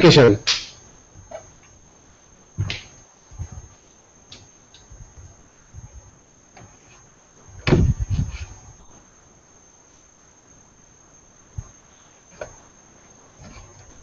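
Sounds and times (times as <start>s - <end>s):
high-pitched whine: 0.0s - 14.0s
thump: 7.6s - 8.2s.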